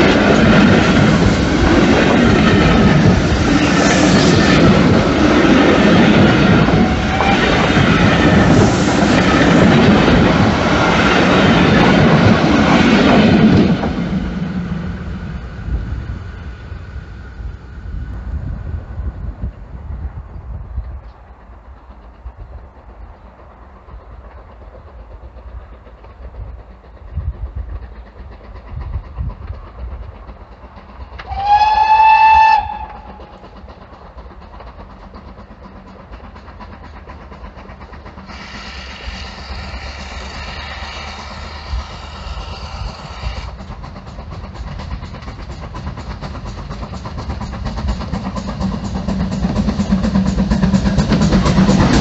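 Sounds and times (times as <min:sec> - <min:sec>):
train rumble: 0:00.0 - 0:52.0
steam locomotive whistle: 0:06.3 - 0:09.1, 0:31.2 - 0:33.6, 0:38.3 - 0:43.6.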